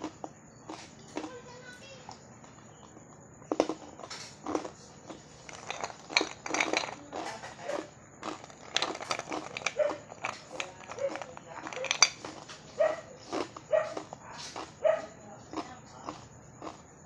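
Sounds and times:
ice shifting in a bowl: 0:04.4 - 0:12.6
ice cubes crunched between teeth: 0:05.4 - 0:07.5, 0:08.2 - 0:12.6, 0:13.2 - 0:14.8.

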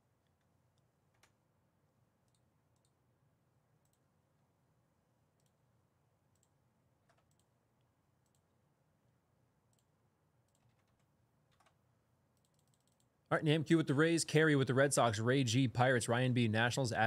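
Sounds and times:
low room hum: 0:00.0 - 0:17.0
computer mouse clicks: 0:00.2 - 0:01.4, 0:02.2 - 0:03.0, 0:03.8 - 0:04.1, 0:05.4 - 0:05.6, 0:06.3 - 0:07.6, 0:08.2 - 0:08.5, 0:09.7 - 0:11.8, 0:12.4 - 0:13.2.

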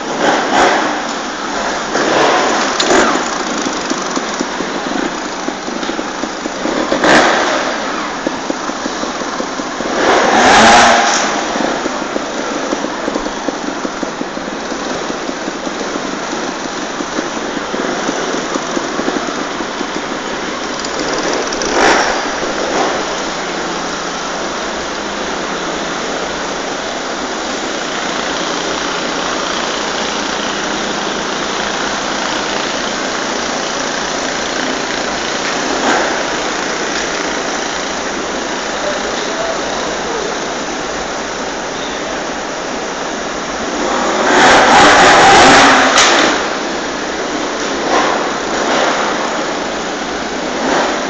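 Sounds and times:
motorcycle engine revving: 0:00.0 - 0:51.0
motorcycle engines running: 0:00.0 - 0:51.0.

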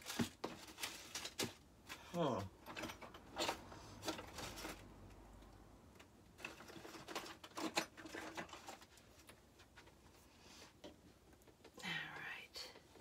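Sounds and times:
small items clattering and rustling: 0:00.0 - 0:05.4, 0:06.0 - 0:10.1.

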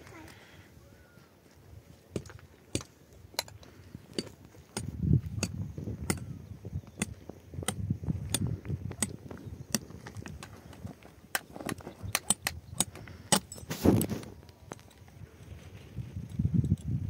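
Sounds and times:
earth scraping: 0:01.5 - 0:17.0
pickaxe striking stony soil: 0:02.1 - 0:14.9.

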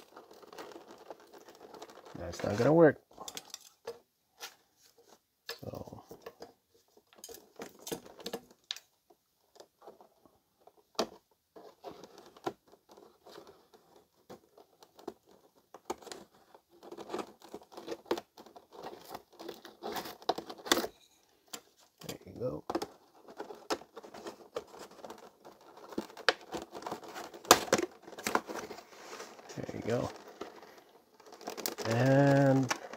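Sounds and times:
plastic blister tray crinkling: 0:00.0 - 0:04.6, 0:05.6 - 0:32.9.

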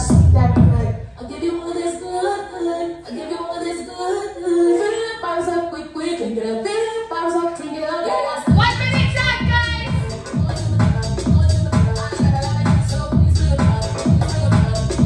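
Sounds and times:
heavy beat and bass: 0:00.0 - 0:01.0, 0:08.5 - 0:15.0
electronic dance music: 0:00.0 - 0:01.2, 0:07.4 - 0:15.0.

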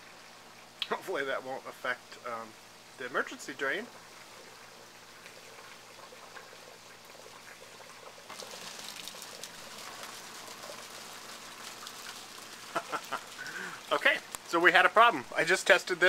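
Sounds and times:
water splashing and bubbling: 0:03.7 - 0:14.5.

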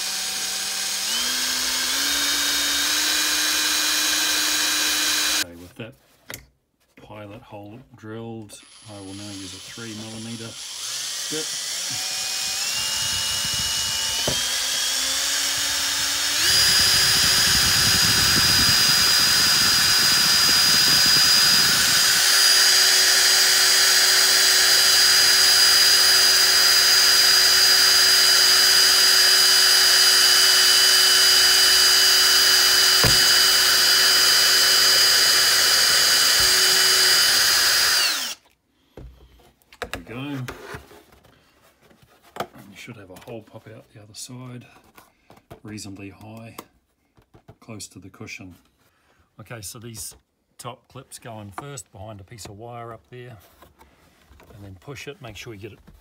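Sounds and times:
cordless drill boring through plastic: 0:00.0 - 0:05.4, 0:08.6 - 0:38.5.

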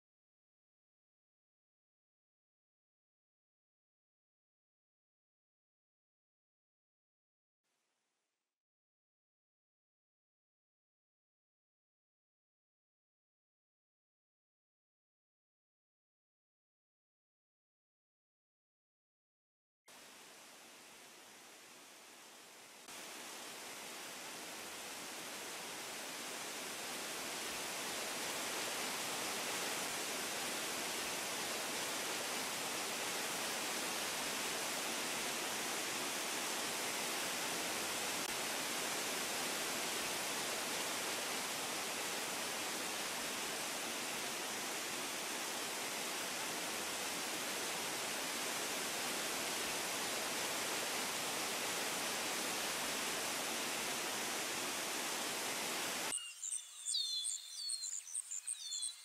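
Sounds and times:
fountain water rushing: 0:19.9 - 0:56.1
birds chirping: 0:56.1 - 0:59.0.

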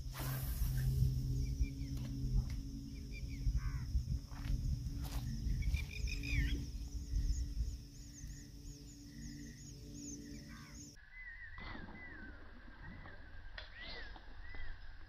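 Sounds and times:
wind rumbling on microphone: 0:00.0 - 0:10.8
birds chirping and whistling: 0:00.0 - 0:14.8.

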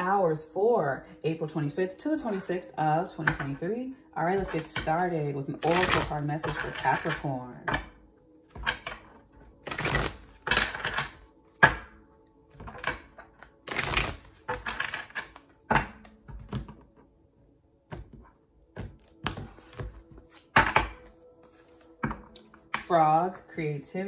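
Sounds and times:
cards rustling: 0:09.6 - 0:11.2, 0:13.4 - 0:16.6, 0:18.8 - 0:22.5.

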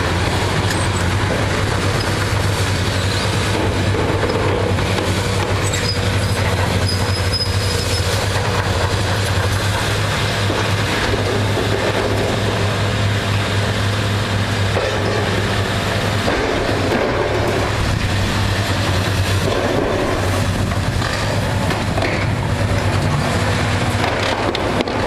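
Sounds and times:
diesel engines running: 0:00.0 - 0:25.0
metallic squeal: 0:05.6 - 0:08.2.

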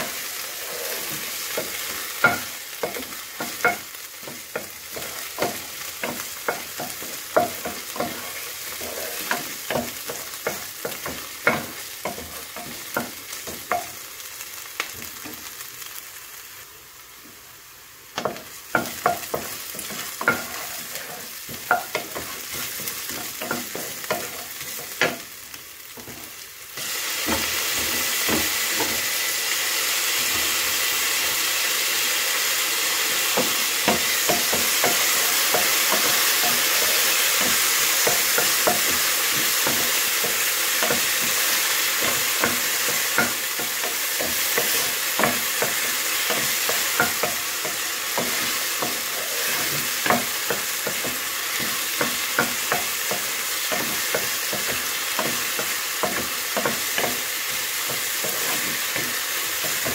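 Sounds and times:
wooden spoon scraping a pan: 0:00.0 - 0:13.9, 0:18.2 - 0:25.3, 0:33.4 - 0:59.9
vegetables sizzling in hot oil: 0:00.0 - 0:59.9.

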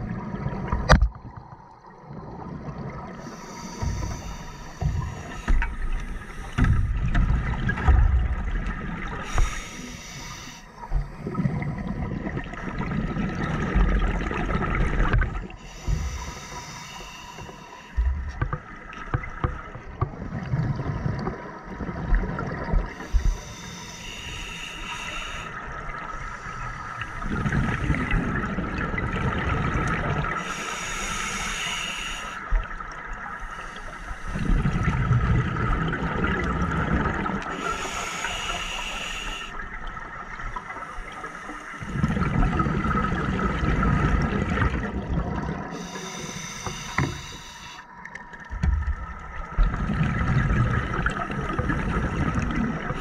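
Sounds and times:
regulator inhale hiss: 0:03.2 - 0:06.9, 0:09.2 - 0:11.4, 0:15.6 - 0:18.0, 0:23.0 - 0:28.0, 0:30.4 - 0:32.6, 0:33.4 - 0:34.6, 0:37.5 - 0:39.6, 0:40.6 - 0:42.0, 0:45.7 - 0:47.9
exhaled bubbles rushing: 0:10.8 - 0:15.6, 0:27.0 - 0:30.4, 0:34.3 - 0:37.5, 0:41.8 - 0:45.8, 0:48.2 - 0:53.0.

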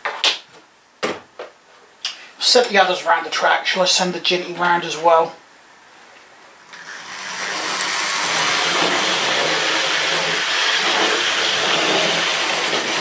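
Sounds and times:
electric motor whir: 0:06.7 - 0:13.0.

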